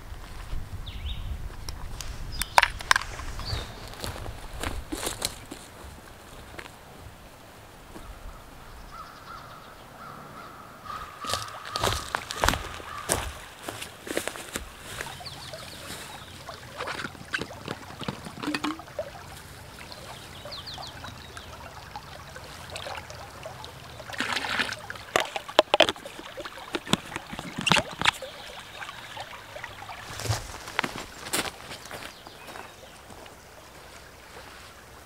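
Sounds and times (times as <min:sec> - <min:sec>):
water splashing: 0:11.2 - 0:32.0
water trickling into bottle: 0:14.4 - 0:32.0
bottle cap clicks and knocks: 0:16.8 - 0:18.9.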